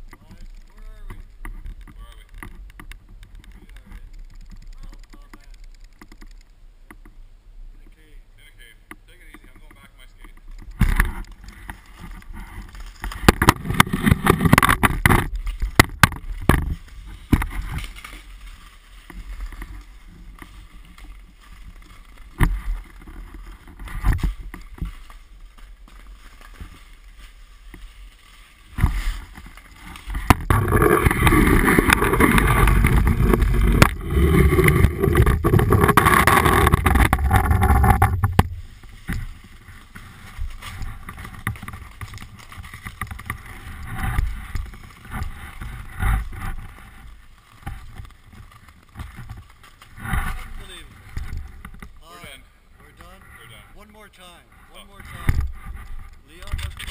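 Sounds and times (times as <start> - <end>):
skates scraping on ice: 11.0 - 51.9.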